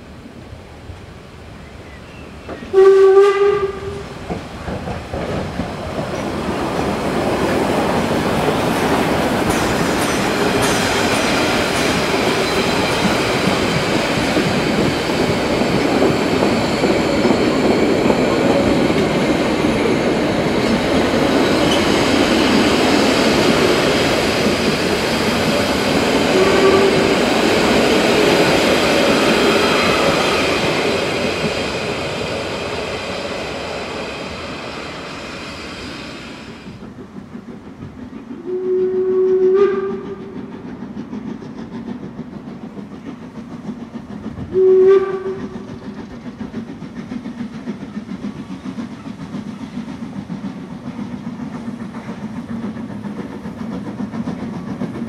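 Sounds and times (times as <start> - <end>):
steam locomotive whistle: 2.0 - 4.2, 26.1 - 27.7, 29.1 - 31.4, 38.4 - 40.4, 44.5 - 45.7
train wheels clicking over rail joints: 2.4 - 55.0.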